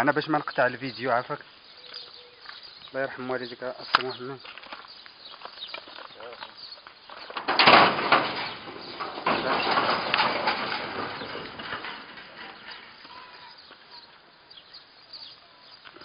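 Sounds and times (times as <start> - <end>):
sheet-metal gate rattling and scraping: 7.2 - 14.0.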